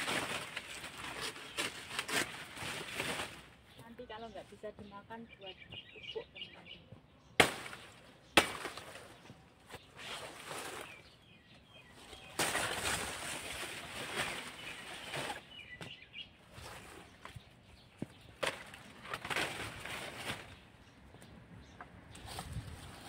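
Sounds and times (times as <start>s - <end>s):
dry leaves and plastic bag rustling: 0.0s - 5.0s, 7.5s - 21.1s, 22.1s - 23.0s
birds chirping: 0.0s - 23.0s
sharp crack of stem cut: 7.4s - 9.1s.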